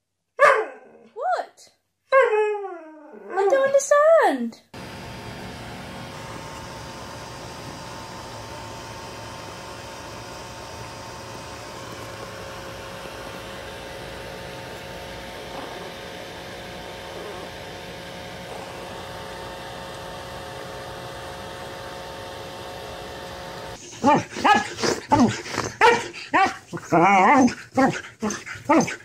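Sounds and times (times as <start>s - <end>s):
dog whining howls: 2.1s - 3.4s
mechanical hum and hiss: 4.8s - 24.3s.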